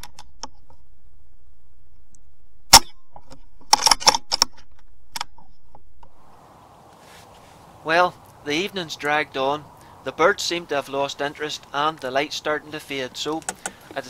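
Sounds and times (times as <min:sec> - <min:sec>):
air rifle shot: 0:02.7 - 0:03.0.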